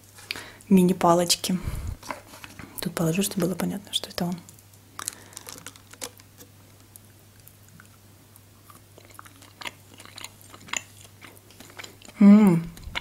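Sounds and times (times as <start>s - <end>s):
faint low hum: 0.0s - 13.0s
chewing chocolate-covered candy: 4.4s - 13.0s.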